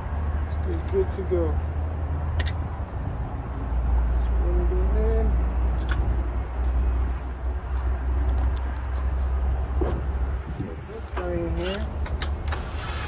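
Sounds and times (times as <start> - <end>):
steady low rumble: 0.0 - 12.8.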